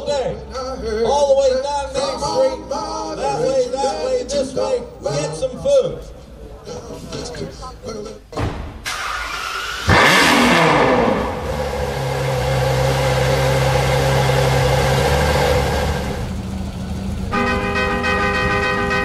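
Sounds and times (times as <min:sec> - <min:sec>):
car engine revving and idling: 0:08.9 - 0:19.0.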